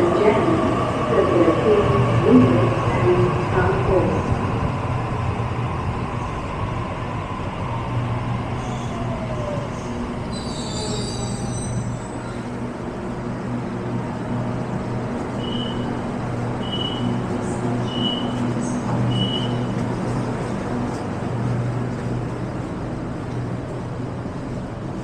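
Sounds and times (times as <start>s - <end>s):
train equipment humming: 0.0s - 25.0s
brief high squeal: 10.3s - 12.4s.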